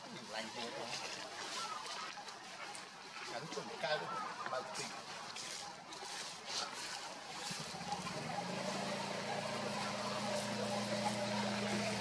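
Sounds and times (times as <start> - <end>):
motor engine humming: 7.4 - 12.0.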